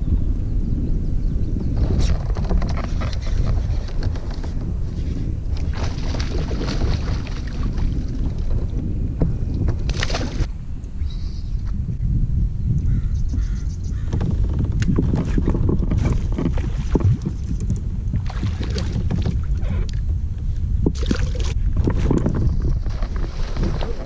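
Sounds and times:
wind buffeting microphone: 0:00.0 - 0:24.0
water lapping against kayak hull: 0:01.7 - 0:10.5, 0:13.4 - 0:24.0
clicks and splashes: 0:05.5 - 0:08.6, 0:09.7 - 0:10.5, 0:14.8 - 0:20.0, 0:20.9 - 0:24.0.

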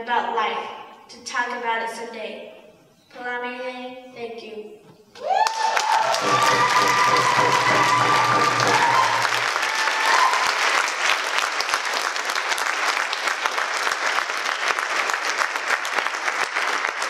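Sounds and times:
audience clapping: 0:05.2 - 0:17.0.

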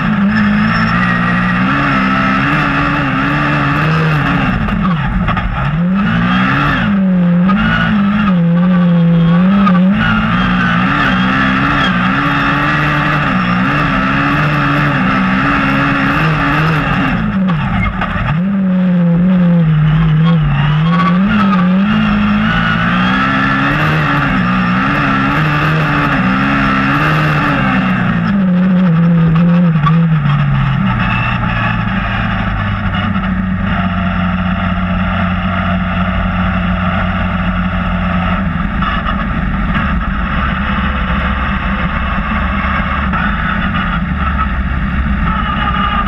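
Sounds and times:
race car engine revving and idling: 0:00.0 - 0:46.0.

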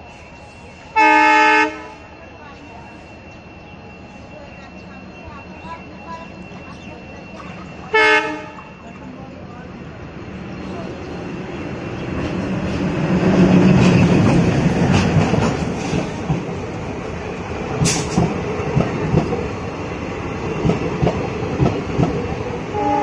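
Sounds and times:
diesel locomotive engine passing: 0:00.0 - 0:23.0
train wheels knocking on rail joints: 0:12.1 - 0:16.5.

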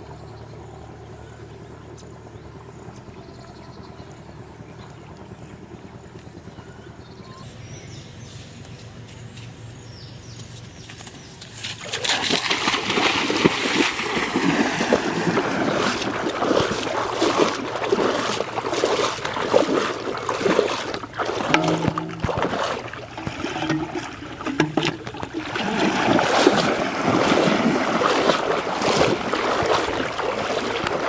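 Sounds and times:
feet splashing through water: 0:10.3 - 0:31.0.

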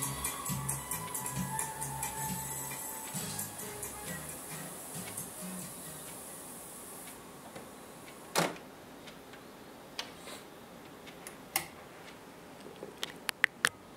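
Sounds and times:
background hiss: 0:00.0 - 0:13.9.

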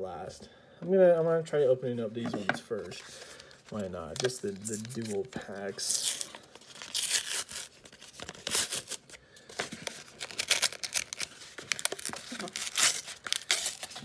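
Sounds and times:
wrapper crinkling: 0:03.2 - 0:14.0
wrapper tearing: 0:03.4 - 0:14.0.

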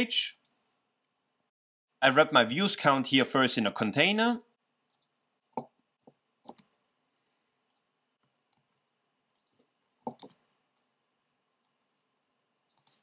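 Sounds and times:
keyboard and mouse clicks: 0:04.9 - 0:06.7, 0:07.7 - 0:10.9, 0:12.6 - 0:13.0.

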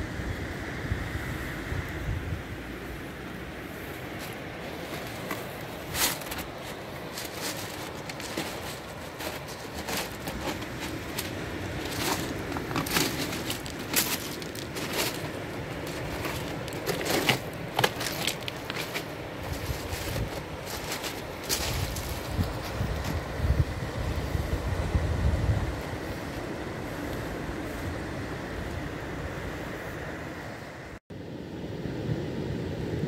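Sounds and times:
wind: 0:00.0 - 0:33.0
footsteps on pebbles: 0:04.1 - 0:23.4.

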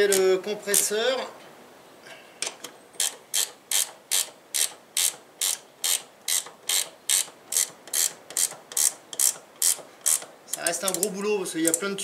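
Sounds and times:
socket ratchet clicking: 0:03.0 - 0:11.9.

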